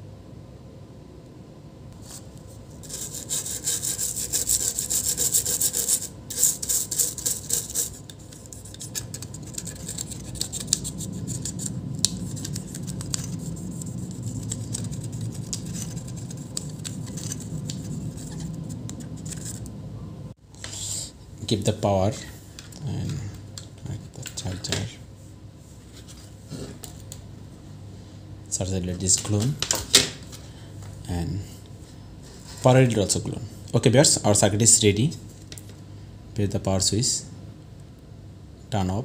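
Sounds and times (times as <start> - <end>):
tool scrubbing circuit board: 2.8 - 19.7.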